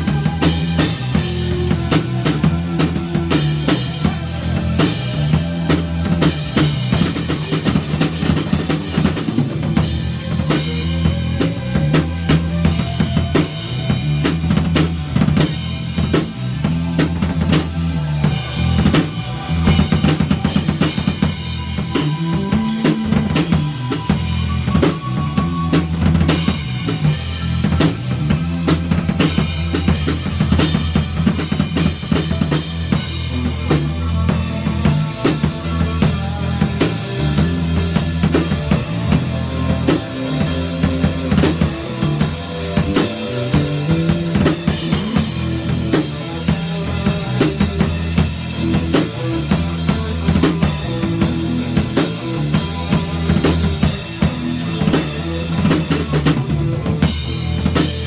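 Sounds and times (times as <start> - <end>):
drum kit playing: 0.0 - 58.0
electric guitars through amplifiers: 0.0 - 58.0.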